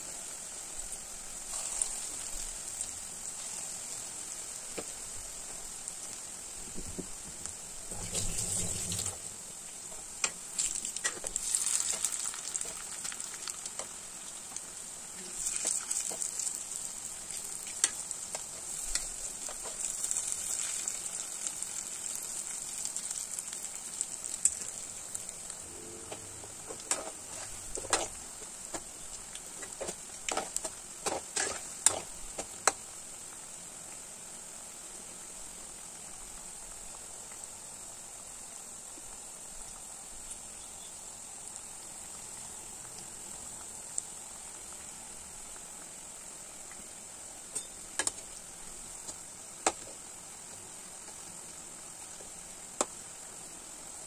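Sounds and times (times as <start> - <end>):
oil sizzling in deep fryer: 0.0 - 54.0
sharp pops of frying: 4.3 - 33.0, 46.6 - 50.2, 52.1 - 53.1.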